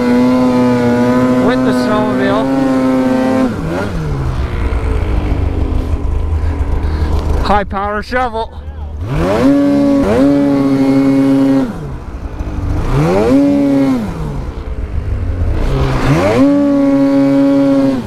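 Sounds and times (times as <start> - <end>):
snowmobile engine revving: 0.0 - 18.0.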